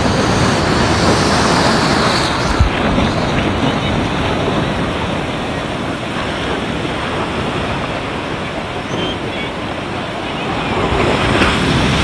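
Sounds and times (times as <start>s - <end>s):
sea surf churning: 0.0s - 12.0s
wind buffeting microphone: 0.0s - 12.0s.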